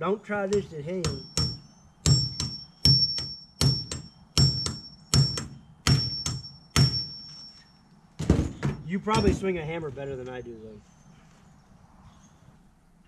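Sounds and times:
hammer striking metal tool: 0.5 - 7.6, 8.6 - 9.4.

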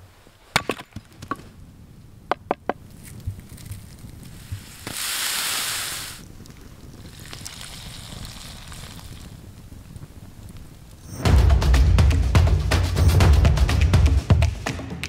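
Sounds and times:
firewood knocking and cracking: 0.5 - 1.5, 2.3 - 4.2
loud hiss: 4.2 - 6.3.

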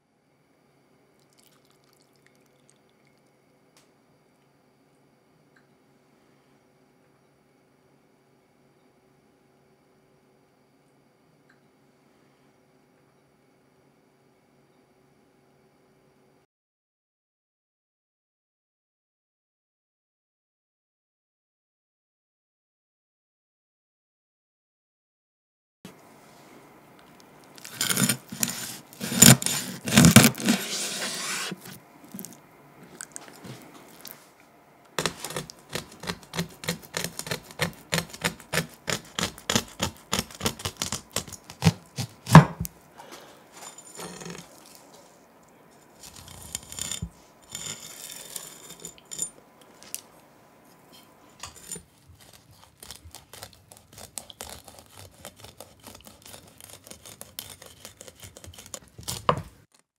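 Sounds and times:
knife scraping fish: 27.6 - 31.8, 35.0 - 42.5, 45.9 - 49.3, 51.4 - 59.6.

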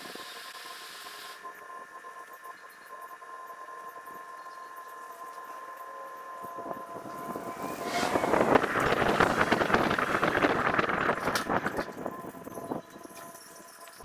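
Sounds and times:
wind noise on microphone: 6.4 - 13.3.

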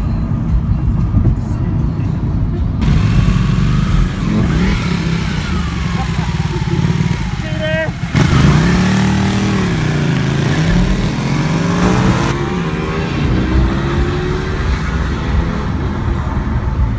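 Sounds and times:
car engine accelerating: 2.7 - 16.9
motorcycle engine revving: 2.8 - 16.9.

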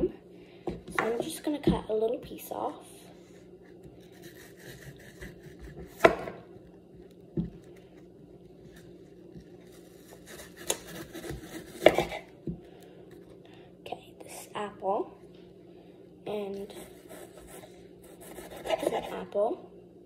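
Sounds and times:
knife cutting apple: 3.7 - 6.4, 8.7 - 12.3, 16.6 - 19.2.

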